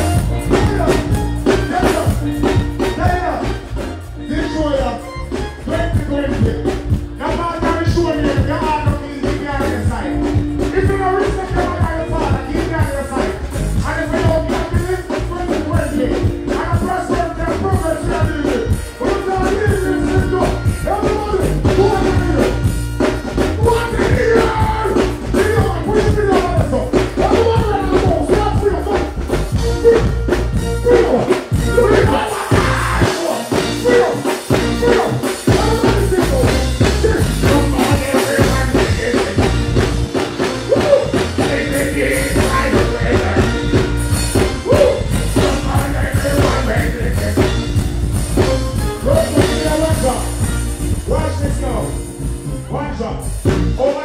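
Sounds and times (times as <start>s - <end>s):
bass-heavy reggae backing track: 0.0s - 54.0s
person chanting and singing: 30.9s - 39.5s.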